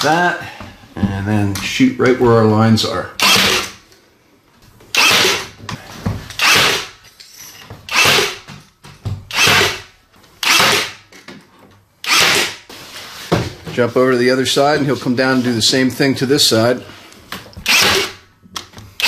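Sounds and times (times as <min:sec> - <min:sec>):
nail gun firing: 0:03.2 - 0:03.8, 0:05.0 - 0:05.5, 0:06.4 - 0:06.9, 0:07.9 - 0:08.5, 0:09.3 - 0:11.0, 0:12.1 - 0:12.6, 0:17.6 - 0:18.2.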